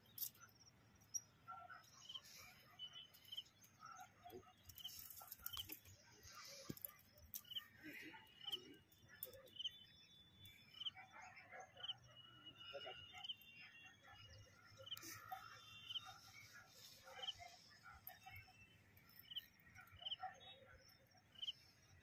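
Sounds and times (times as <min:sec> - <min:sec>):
bird chirping: 0:07.4 - 0:21.6.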